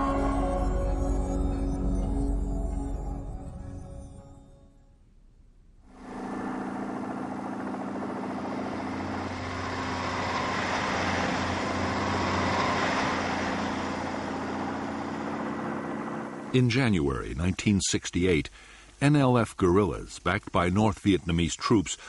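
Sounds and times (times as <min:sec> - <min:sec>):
music: 0:00.0 - 0:05.2
truck engine running: 0:05.8 - 0:17.7.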